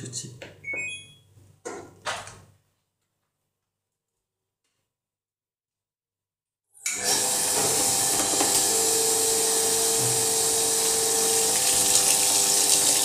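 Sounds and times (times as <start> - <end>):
water gushing into washing machine: 6.9 - 13.0.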